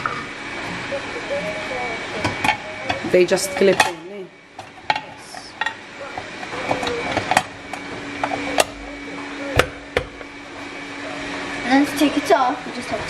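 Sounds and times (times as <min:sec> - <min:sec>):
steady low hum: 0:00.0 - 0:13.0
plates clicking into appliance: 0:02.2 - 0:08.8.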